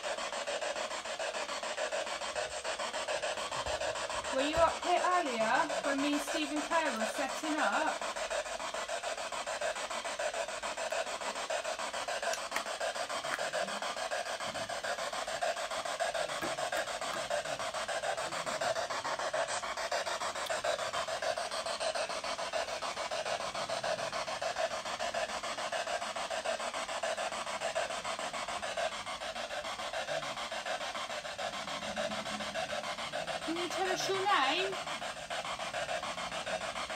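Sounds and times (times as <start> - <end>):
steady hiss: 26.0 - 36.9.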